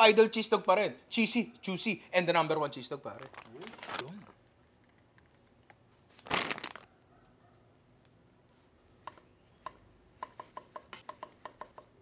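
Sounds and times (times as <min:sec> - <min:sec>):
plastic food pack rustling: 0:06.2 - 0:06.9.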